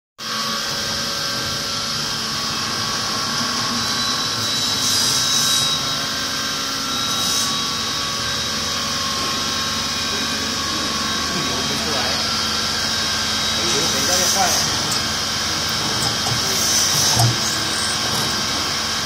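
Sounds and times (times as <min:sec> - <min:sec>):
machine spindle motors whining: 0:00.3 - 0:19.0.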